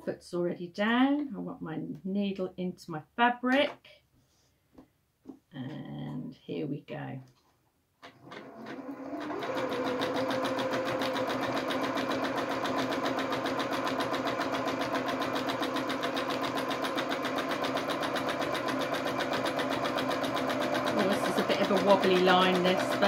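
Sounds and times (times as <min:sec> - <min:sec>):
sewing machine stitching: 0:08.0 - 0:23.0.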